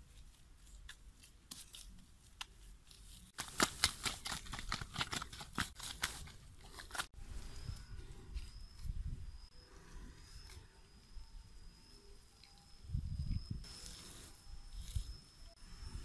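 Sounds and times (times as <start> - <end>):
dry grass crackling and rustling: 0.0 - 7.6
wet mud patting: 3.4 - 6.4.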